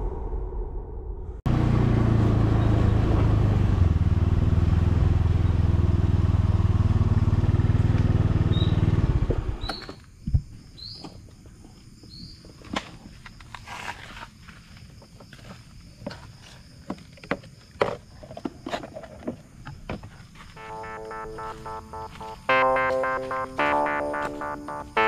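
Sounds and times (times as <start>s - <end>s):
motor scooter engine running: 1.5s - 9.7s
intro music: 20.6s - 25.0s.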